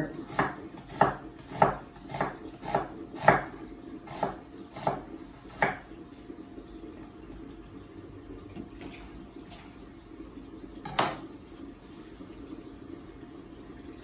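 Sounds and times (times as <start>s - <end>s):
knife chopping on wooden board: 0.3s - 3.5s, 4.1s - 5.8s.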